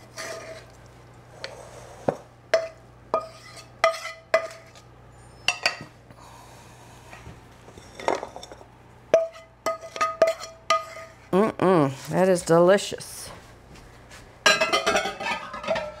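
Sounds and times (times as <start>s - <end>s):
utensil clinking on metal pan: 14.5s - 16.0s.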